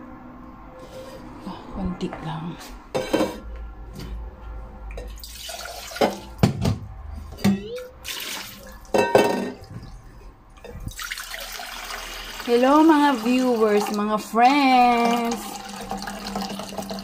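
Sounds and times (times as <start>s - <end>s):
pot and utensils knocking: 3.0s - 3.5s, 8.9s - 9.7s
tap water running into a pot: 5.0s - 6.4s, 8.0s - 10.0s, 10.6s - 17.0s.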